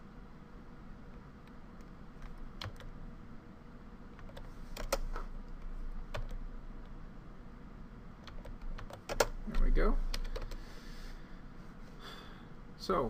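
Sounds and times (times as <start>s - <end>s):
faint low hum: 0.0s - 13.0s
keyboard and mouse clicks: 1.5s - 2.9s, 4.2s - 6.9s, 8.2s - 10.6s.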